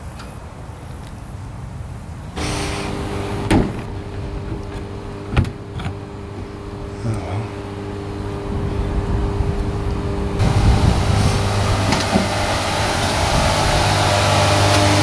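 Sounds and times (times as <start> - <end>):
two-tone mechanical hum: 2.3 - 15.0.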